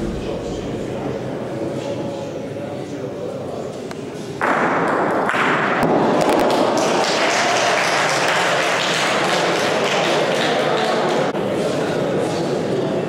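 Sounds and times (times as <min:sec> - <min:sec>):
crowd applauding: 0:06.2 - 0:11.3.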